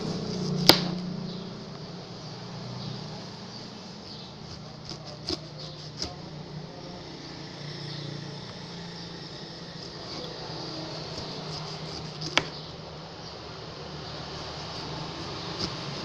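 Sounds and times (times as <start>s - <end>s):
knife slicing pineapple rind: 0.0s - 1.1s, 3.9s - 6.4s, 9.5s - 12.8s, 14.0s - 16.0s
steady low hum: 0.0s - 16.0s.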